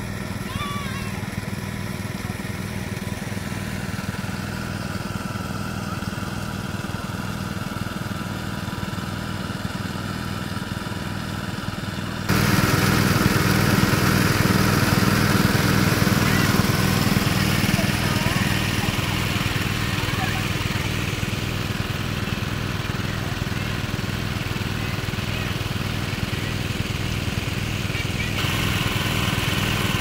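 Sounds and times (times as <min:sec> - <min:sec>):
water pump engine running: 0:00.0 - 0:30.0
water gushing from pipes: 0:12.3 - 0:30.0.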